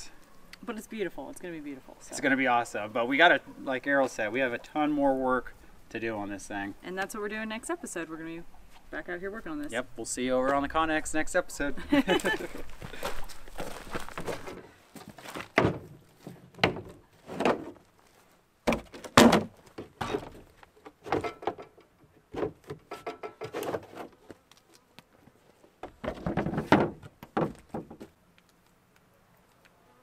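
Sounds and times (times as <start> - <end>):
metal knocks and clunks: 15.4 - 16.0, 16.6 - 17.8, 18.7 - 23.9, 25.8 - 28.1.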